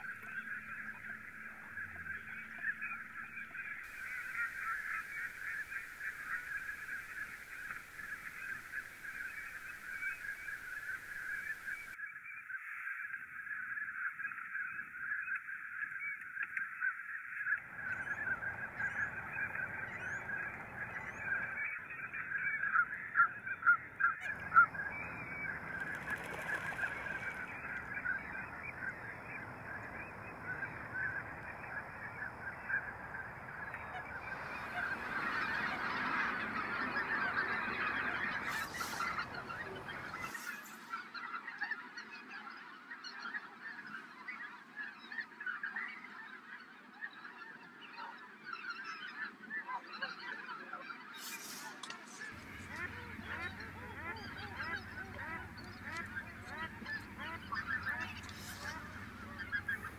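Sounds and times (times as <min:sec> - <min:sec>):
sharp waterfowl calls: 0:00.0 - 0:12.0, 0:16.8 - 0:42.0, 0:51.2 - 0:59.9
flock of waterfowl calling: 0:00.0 - 0:59.9.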